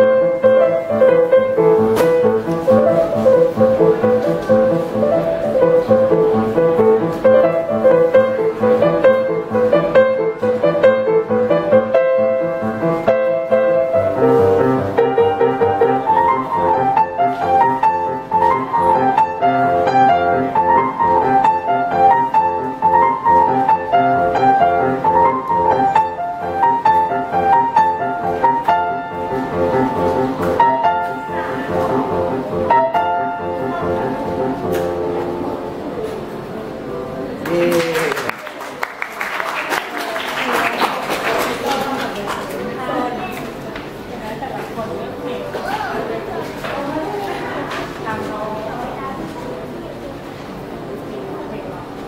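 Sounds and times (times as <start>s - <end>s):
solo grand piano melody: 0.0s - 37.5s.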